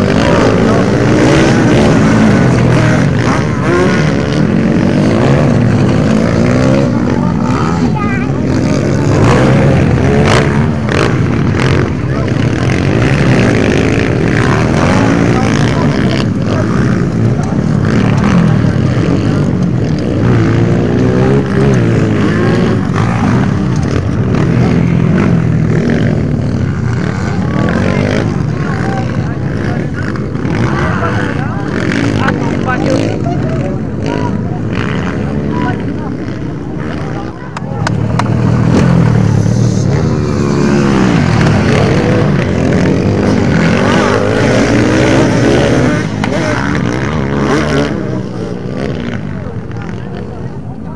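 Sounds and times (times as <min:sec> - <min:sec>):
dirt bike engines revving: 0:00.0 - 0:50.9.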